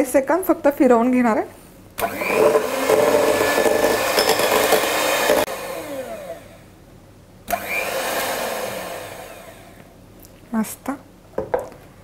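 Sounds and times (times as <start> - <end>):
electric hand mixer whirring: 2.0 - 6.7, 7.5 - 9.9.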